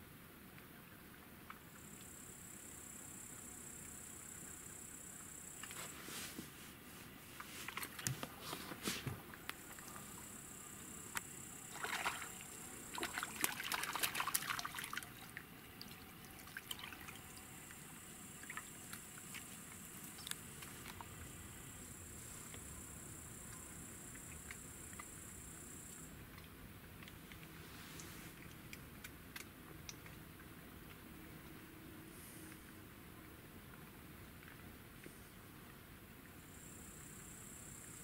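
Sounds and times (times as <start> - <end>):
water splashing and sloshing: 5.6 - 10.3, 11.0 - 22.7
insect chirring: 9.6 - 15.0.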